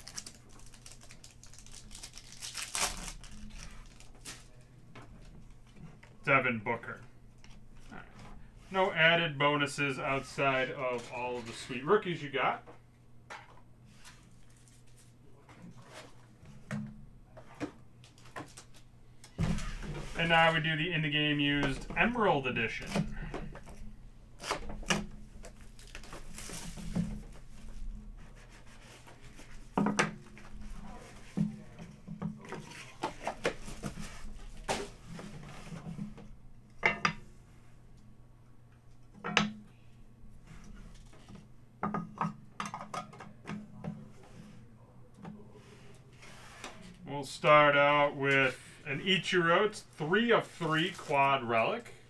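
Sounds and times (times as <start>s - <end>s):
plastic wrap rustling and tearing: 0.0s - 4.7s, 24.4s - 27.3s.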